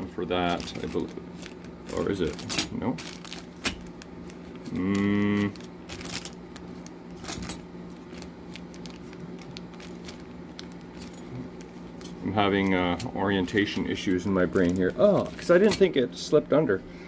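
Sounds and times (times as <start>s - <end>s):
plastic bag crinkling: 0.2s - 16.0s
metal parts clinking: 2.3s - 3.2s
short low hum: 3.4s - 12.4s.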